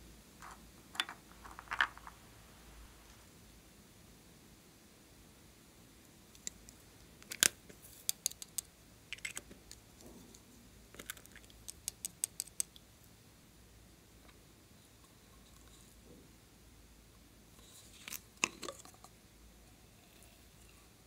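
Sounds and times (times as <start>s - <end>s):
plastic containers clicking and tapping: 0.4s - 2.2s.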